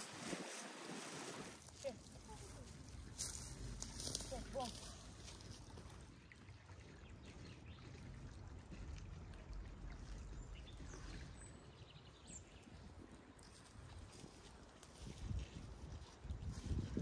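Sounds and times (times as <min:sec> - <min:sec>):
wind rumble on microphone: 0:10.1 - 0:17.0.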